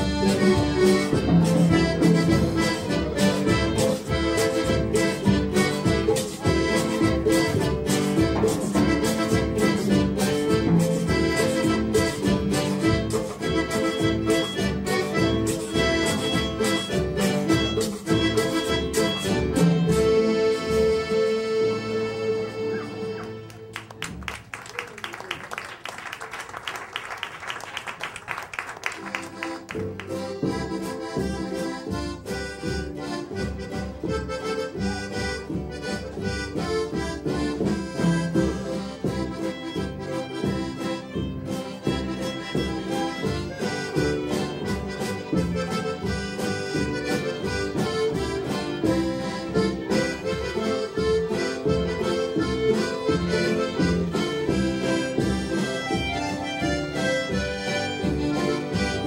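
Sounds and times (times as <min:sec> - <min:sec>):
band playing accordion-led tune: 0:00.0 - 0:59.0
audience clapping: 0:22.7 - 0:30.6.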